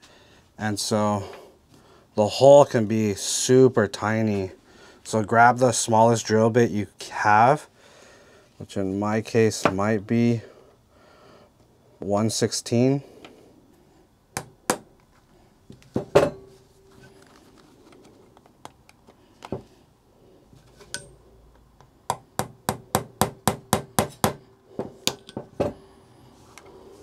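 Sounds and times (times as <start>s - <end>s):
tools clicking and knocking on workbench: 23.5s - 25.8s.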